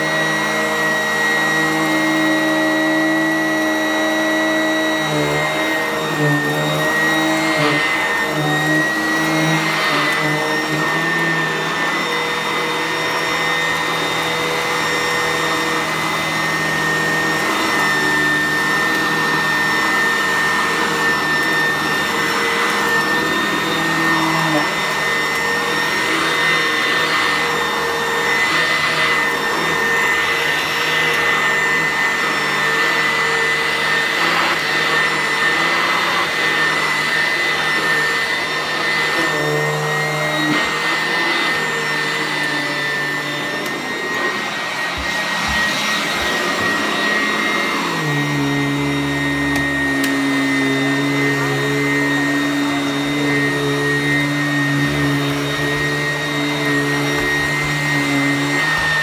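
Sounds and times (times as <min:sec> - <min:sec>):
vacuum cleaner running on carpet: 0:00.0 - 0:59.0.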